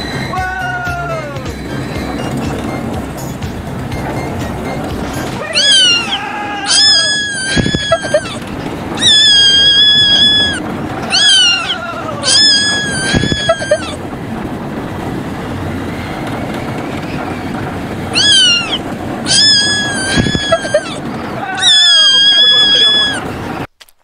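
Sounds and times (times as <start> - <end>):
steady rushing noise: 0.0 - 23.7
kitten screaming: 5.4 - 14.0, 18.1 - 23.4.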